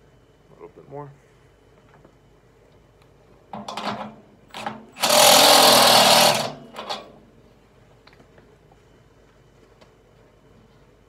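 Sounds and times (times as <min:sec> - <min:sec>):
power drill drilling into sheet steel: 0:04.6 - 0:07.0.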